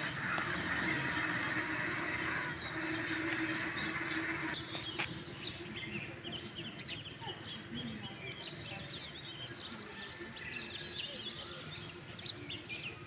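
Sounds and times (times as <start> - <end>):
road traffic engine hum: 0.0 - 6.2
small birds chirping: 0.0 - 13.0.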